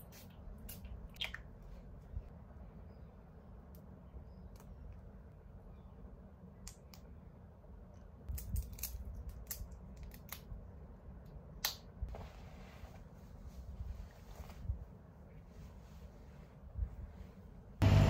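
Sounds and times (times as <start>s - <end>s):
low room hum: 0.0s - 18.0s
rustle of cardigan fabric: 12.1s - 17.5s.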